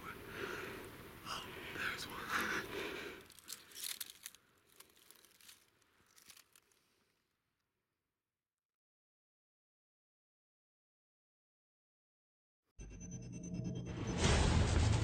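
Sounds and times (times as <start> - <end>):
dry crackling and rustling clicks: 2.6 - 7.3.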